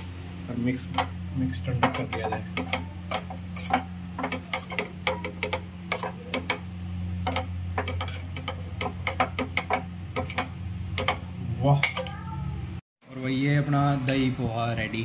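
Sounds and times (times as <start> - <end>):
steady low hum: 0.0 - 15.0
metal spoon scraping steel pan: 0.8 - 6.6, 7.2 - 12.2.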